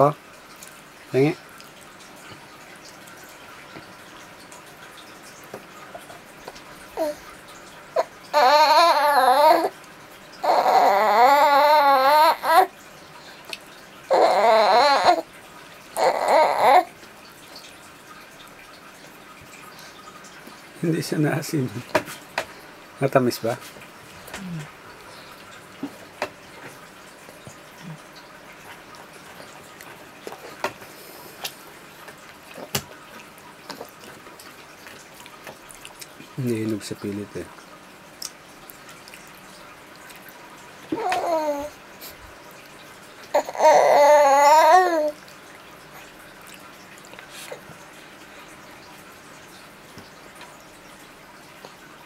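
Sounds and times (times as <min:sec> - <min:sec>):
faint room hiss: 0:00.0 - 0:52.0
baby sing-song vocalizing: 0:06.9 - 0:07.3, 0:08.0 - 0:09.8, 0:10.4 - 0:12.7, 0:14.1 - 0:15.3, 0:16.0 - 0:17.0, 0:40.9 - 0:42.2, 0:43.3 - 0:45.3.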